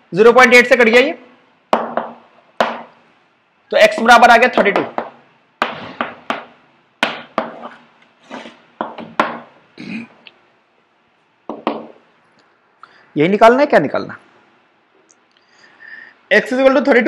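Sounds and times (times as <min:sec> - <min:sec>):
chalk tapping and scratching: 0:03.9 - 0:09.4.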